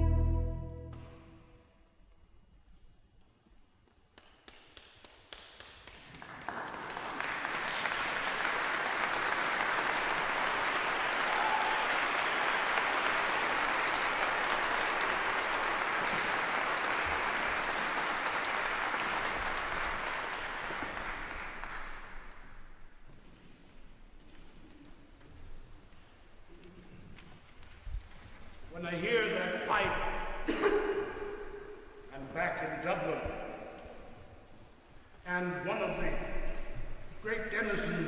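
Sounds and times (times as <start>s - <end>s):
audience applause: 4.8s - 22.4s.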